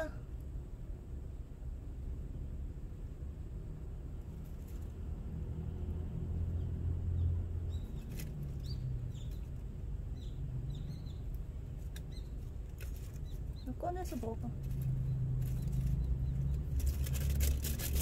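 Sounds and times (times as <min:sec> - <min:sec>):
low steady hum: 0:00.0 - 0:18.0
small birds chirping: 0:06.4 - 0:17.3.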